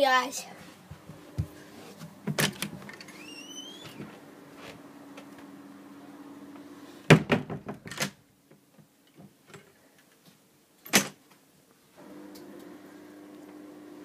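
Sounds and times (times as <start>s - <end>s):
sharp knocks and clatter: 7.1s - 8.0s.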